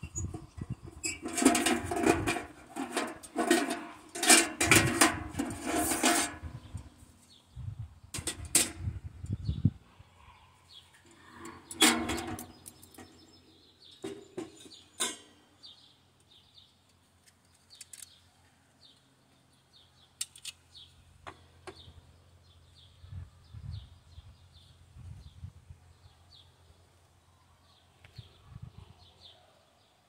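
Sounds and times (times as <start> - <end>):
metal stove parts clanking: 0.0 - 6.9, 8.1 - 9.0, 11.4 - 15.4.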